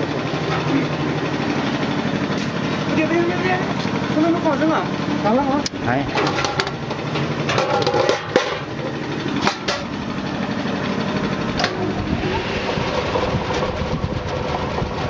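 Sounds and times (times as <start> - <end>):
machinery humming: 0.0 - 15.0
metallic clanks: 6.1 - 9.9.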